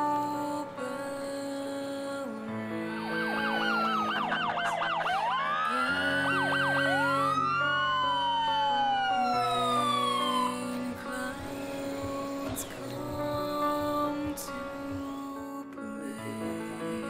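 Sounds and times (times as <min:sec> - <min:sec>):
soft music chords: 0:00.0 - 0:17.0
police sirens: 0:03.0 - 0:11.0.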